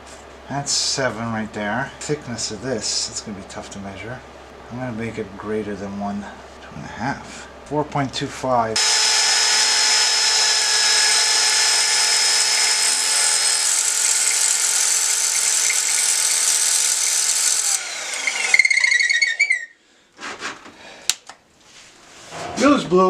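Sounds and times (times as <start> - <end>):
power tools winding down: 8.8 - 19.7
high grinding whine: 8.8 - 19.8.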